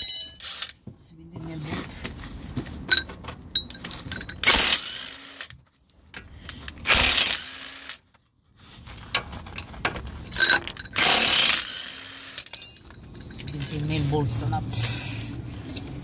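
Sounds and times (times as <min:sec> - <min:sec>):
impact wrench bursts: 0:04.3 - 0:05.6, 0:06.6 - 0:08.0, 0:10.4 - 0:12.6.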